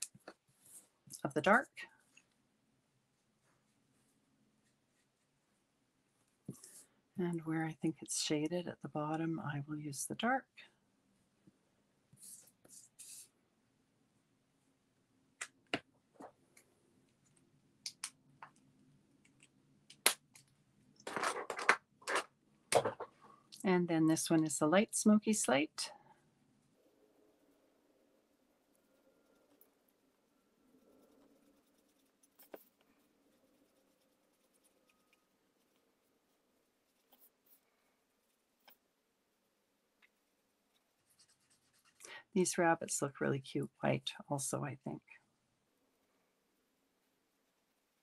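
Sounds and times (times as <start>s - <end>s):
soft rustle: 0.1s - 1.2s, 3.2s - 7.0s, 12.1s - 13.4s
marker strokes on card: 12.2s - 13.3s, 40.7s - 42.1s
faint low hum: 22.4s - 48.0s.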